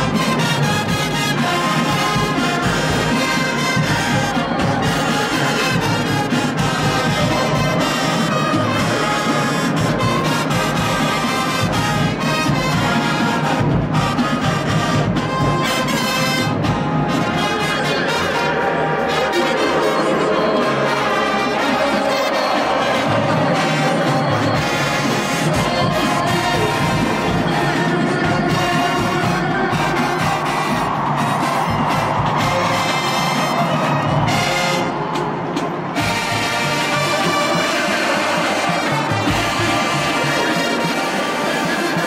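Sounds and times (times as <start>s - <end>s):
marching band brass playing: 0.0s - 42.0s.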